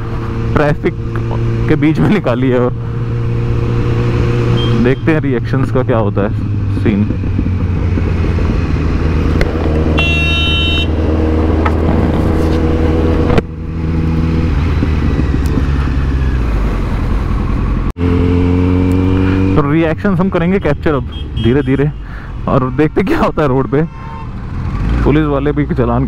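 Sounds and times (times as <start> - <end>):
motorcycle engine running: 0.0 - 12.3, 12.9 - 19.6
vehicle horn honking: 4.5 - 5.0, 9.9 - 11.0, 20.6 - 22.0, 23.8 - 24.4.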